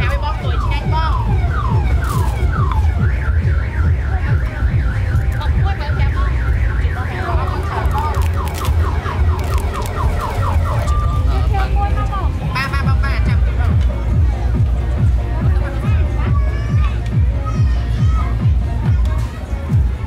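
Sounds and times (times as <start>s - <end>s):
car alarm: 0.4s - 11.3s.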